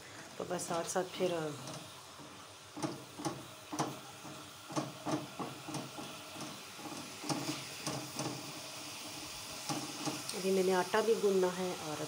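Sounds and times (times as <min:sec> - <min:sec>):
onions sizzling in oil: 0:00.0 - 0:12.0
spatula scraping wok: 0:01.4 - 0:10.6.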